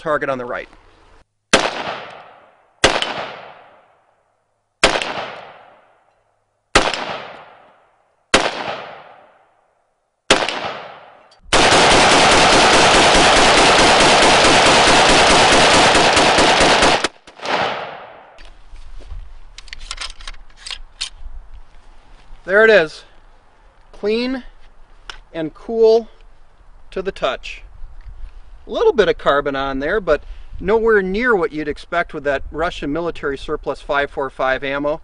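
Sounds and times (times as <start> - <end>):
rifle gunshots with echo: 1.5 - 4.0, 4.8 - 5.9, 6.7 - 9.5, 10.3 - 18.4
rapid gunfire: 1.6 - 3.8, 4.8 - 5.7, 6.8 - 7.6, 8.4 - 9.2, 10.3 - 18.2
rifle handling clicks: 19.5 - 21.2.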